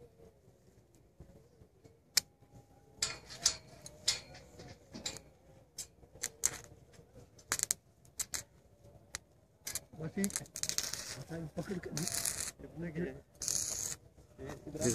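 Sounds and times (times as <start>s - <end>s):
welding arc crackling and popping: 6.2s - 6.7s, 7.4s - 8.5s, 9.1s - 12.6s, 13.4s - 14.0s.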